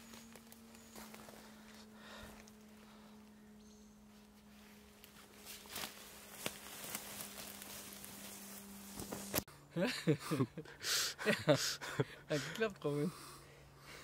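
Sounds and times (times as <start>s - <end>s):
footsteps in leaf litter: 0.0s - 3.1s, 4.0s - 9.5s
faint steady hum: 0.0s - 14.0s.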